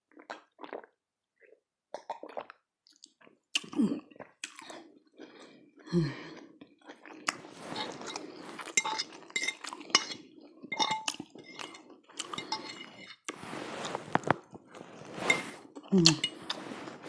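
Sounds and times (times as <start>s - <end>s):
fork clinking against bowl: 8.8s - 13.0s.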